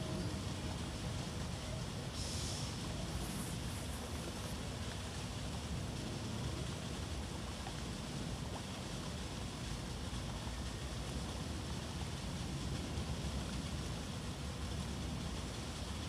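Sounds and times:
even hiss: 0.0s - 6.6s.

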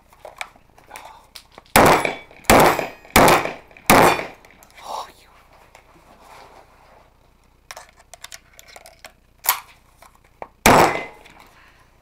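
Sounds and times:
shotgun blast: 1.8s - 4.4s, 10.6s - 11.3s.

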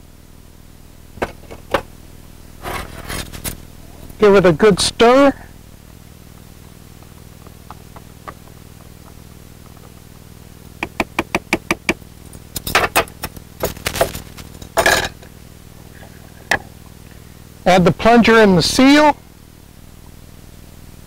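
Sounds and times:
utensil and gear clattering: 7.0s - 15.3s.

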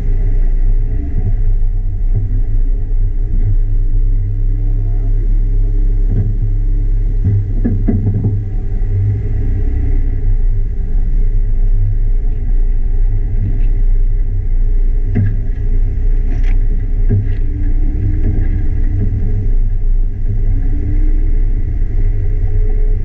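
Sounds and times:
vehicle engine deep rumble: 0.0s - 23.0s
sharp knocks: 7.2s - 8.6s.

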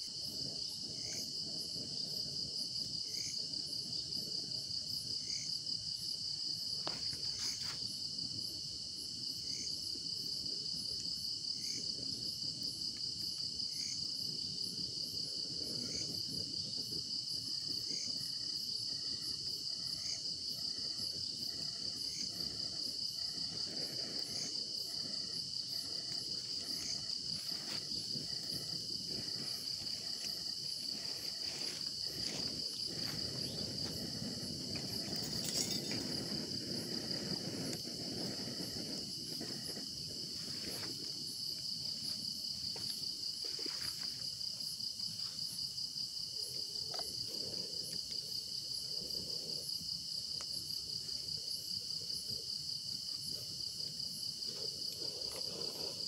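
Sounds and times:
short insect call: 0.0s - 14.2s, 15.0s - 56.0s
campfire crackling: 0.0s - 51.6s, 52.2s - 56.0s
crickets trilling: 0.0s - 56.0s
fire snapping: 20.9s - 41.1s.

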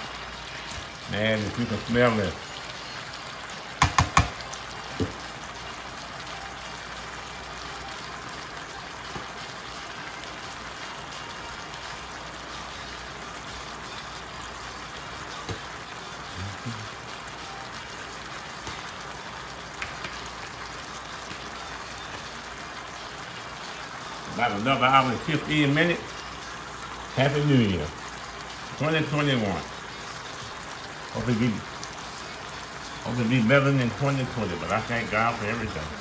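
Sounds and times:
food sizzling in a skillet: 0.0s - 36.0s
spatula knocking against pan: 3.8s - 4.4s.

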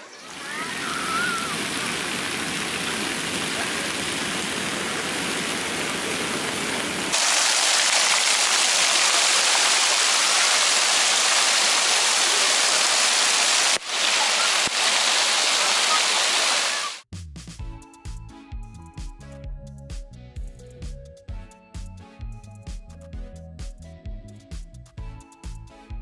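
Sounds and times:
fountain water splashing on paving: 0.2s - 17.0s.

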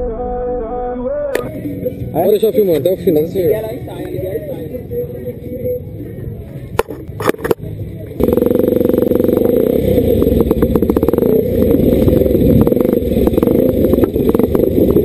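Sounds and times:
constant rattle: 6.4s - 15.0s
dirt bike engine revving: 8.2s - 15.0s.

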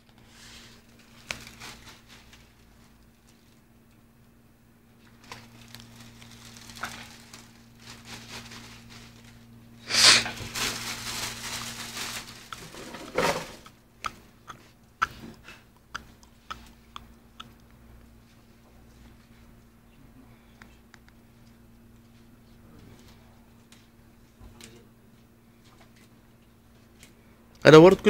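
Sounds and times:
cellophane wrapping crinkling: 0.5s - 3.7s, 5.0s - 13.8s.

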